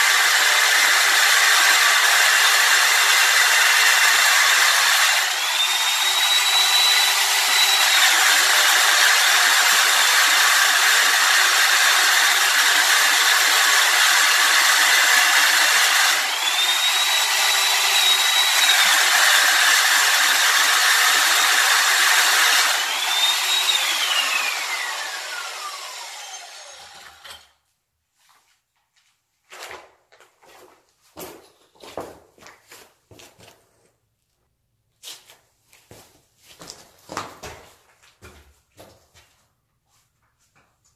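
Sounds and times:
power tool grinding concrete: 0:00.0 - 0:27.5
footsteps: 0:28.1 - 0:34.0, 0:35.0 - 0:40.9.

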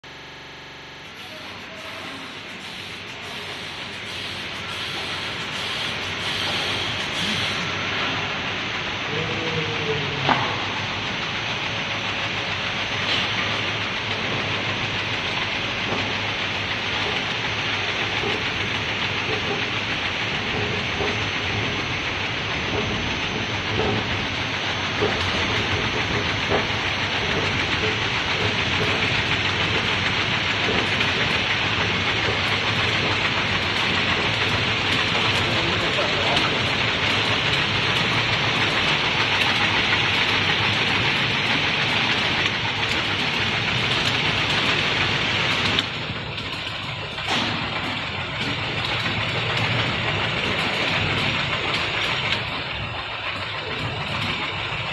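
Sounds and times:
fruit clattering on roller conveyor: 0:11.8 - 0:54.9.

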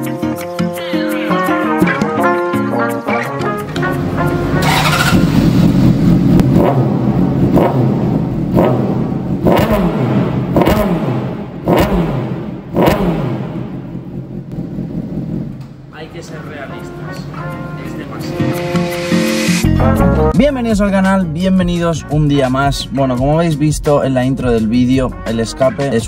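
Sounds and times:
motorcycle engine revving: 0:03.7 - 0:15.9.

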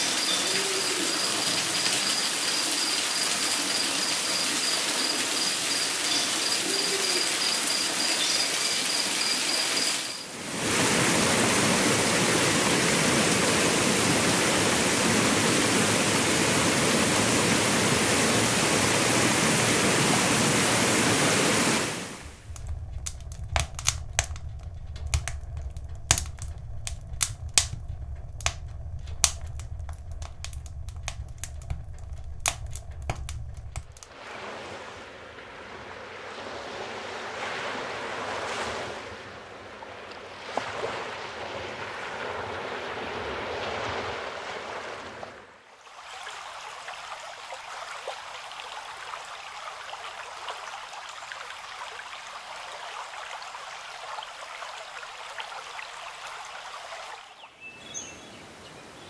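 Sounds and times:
waterfall splashing into pool: 0:00.0 - 0:24.5
low rumble: 0:22.1 - 0:34.1
sharp clicks: 0:22.4 - 0:34.1.

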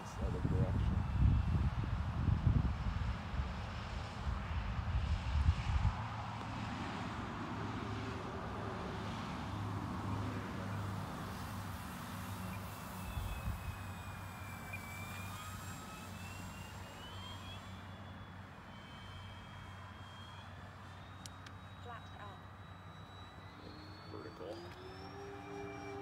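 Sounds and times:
model plane propellers droning: 0:00.0 - 0:26.0
wind buffeting microphone: 0:00.1 - 0:06.4.

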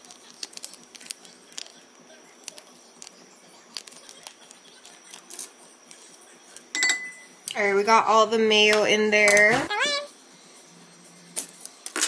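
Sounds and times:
plastic packet crinkling: 0:00.0 - 0:01.8.

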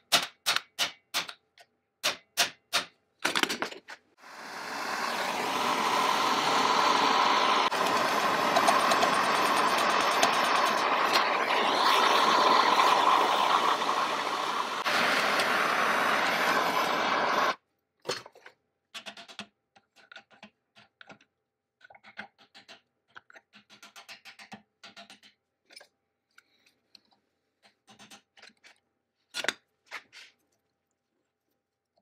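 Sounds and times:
gas torch roaring: 0:04.2 - 0:17.6.

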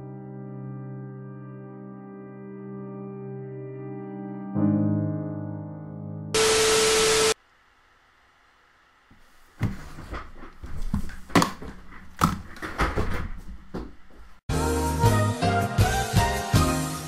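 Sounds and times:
knocks and thumps in a room: 0:09.1 - 0:14.4.

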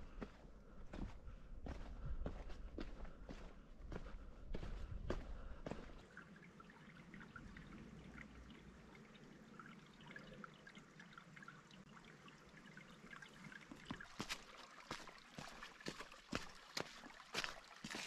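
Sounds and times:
water trickling and dripping: 0:04.6 - 0:18.0.

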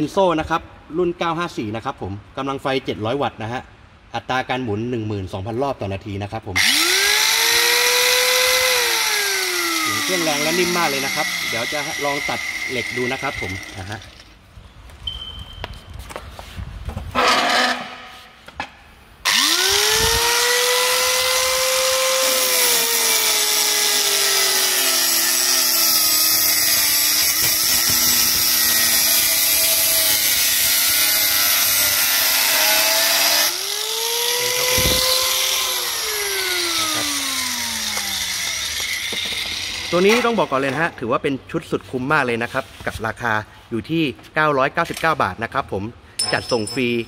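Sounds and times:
angle grinder cutting steel: 0:06.6 - 0:14.3, 0:19.2 - 0:40.9.

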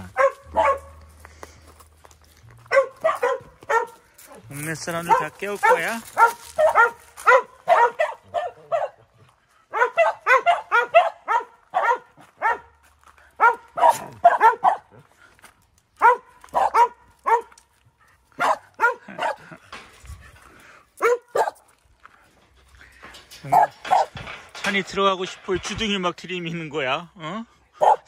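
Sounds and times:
dog barking: 0:00.0 - 0:01.0, 0:02.6 - 0:12.8, 0:13.4 - 0:15.0, 0:16.0 - 0:17.6, 0:18.4 - 0:19.5, 0:21.0 - 0:21.7, 0:23.5 - 0:24.2, 0:27.8 - 0:28.0.

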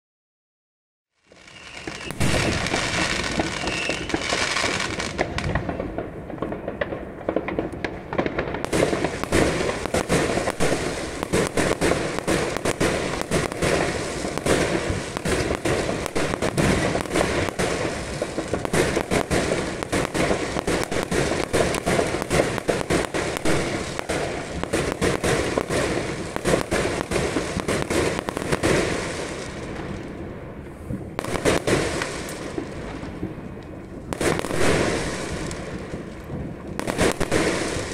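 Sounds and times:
fireworks bangs and crackles: 0:01.2 - 0:37.9.

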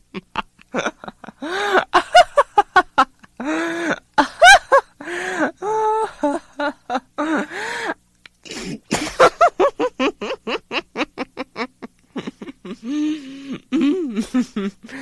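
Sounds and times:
woman laughing hysterically: 0:00.1 - 0:08.0, 0:08.9 - 0:15.0.

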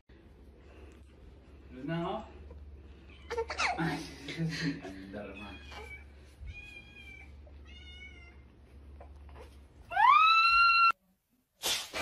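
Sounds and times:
cat meowing: 0:05.4 - 0:08.5
cat yowling: 0:09.9 - 0:11.0.

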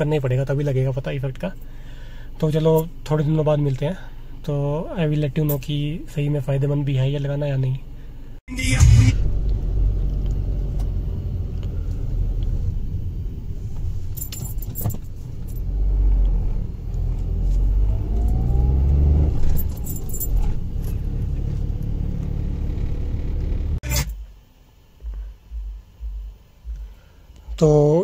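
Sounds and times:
car engine and road rumble: 0:00.0 - 0:27.0
short jingling rattles: 0:14.0 - 0:15.7, 0:19.4 - 0:21.2.

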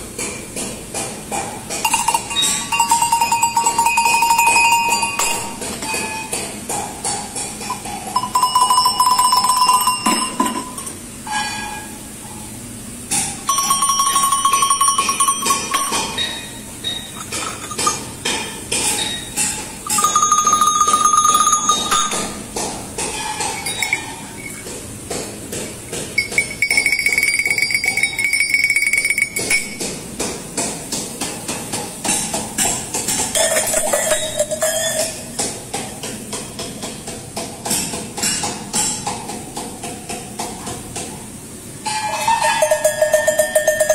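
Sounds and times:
sheep bells clanking: 0:01.9 - 0:06.1, 0:07.7 - 0:11.0, 0:13.5 - 0:18.2, 0:19.0 - 0:22.4, 0:23.5 - 0:24.6, 0:26.2 - 0:29.8, 0:41.9 - 0:43.9
single bell ringing: 0:08.2 - 0:11.0, 0:13.5 - 0:18.0, 0:19.9 - 0:22.4, 0:42.0 - 0:43.9.

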